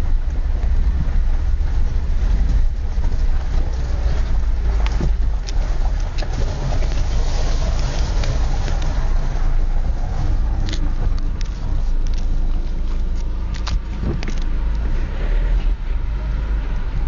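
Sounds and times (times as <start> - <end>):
car engine and road noise: 0.0 - 17.0
sharp clicks and ticks: 10.5 - 14.9.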